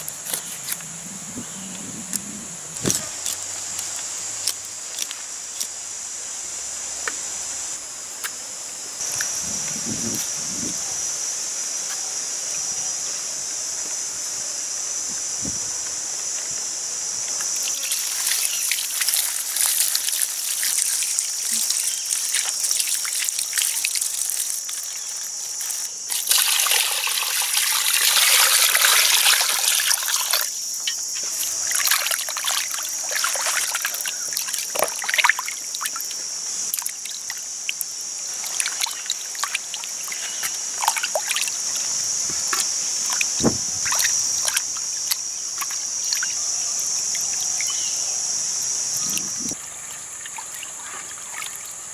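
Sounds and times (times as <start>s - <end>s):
water dripping: 17.6s - 25.0s, 26.1s - 31.0s, 31.6s - 46.4s
water pouring and splashing: 17.6s - 46.4s, 49.1s - 51.8s.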